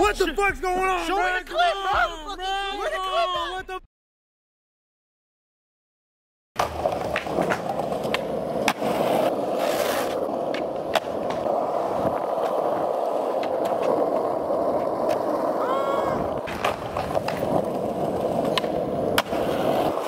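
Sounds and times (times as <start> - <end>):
skateboard rolling on pavement: 6.6 - 20.0.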